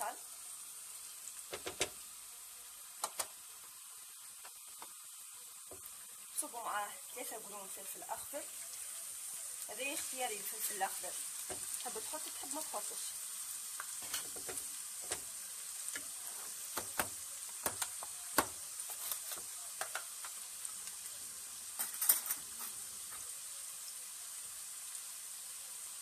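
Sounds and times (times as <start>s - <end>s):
vegetables sizzling in hot oil: 0.0s - 26.0s
sharp pops and knocks: 1.5s - 2.0s, 3.0s - 3.3s, 11.4s - 11.7s, 14.0s - 15.3s, 16.7s - 18.6s.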